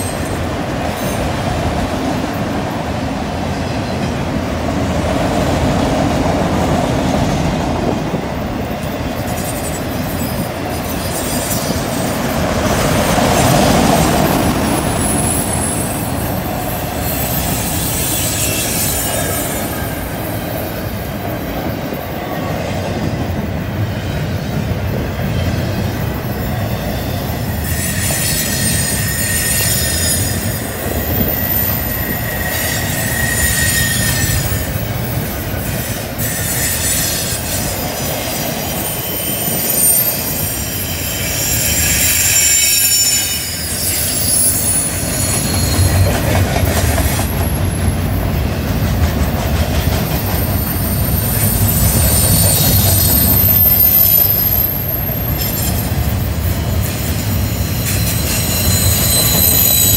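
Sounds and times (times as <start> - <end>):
freight train wheel rumble: 0.0 - 59.9
wheel flange squeal: 14.8 - 21.0, 26.2 - 46.4, 50.1 - 59.9.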